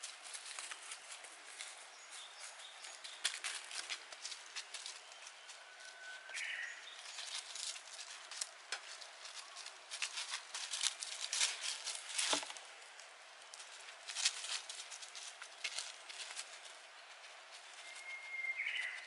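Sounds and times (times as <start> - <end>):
dog paws on dry leaves: 0.0 - 19.0
high whistle-like tone: 17.8 - 18.6.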